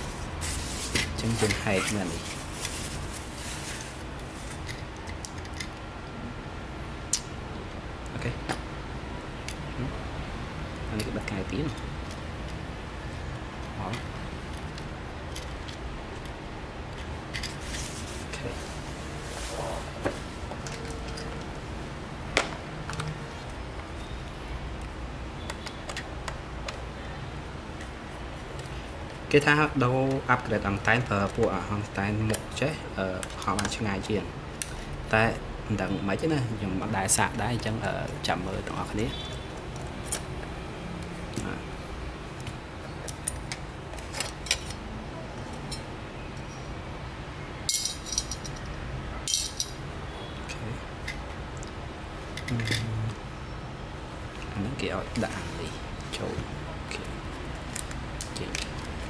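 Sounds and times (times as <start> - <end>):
small parts clicking and clinking: 3.4 - 5.8, 47.7 - 49.8.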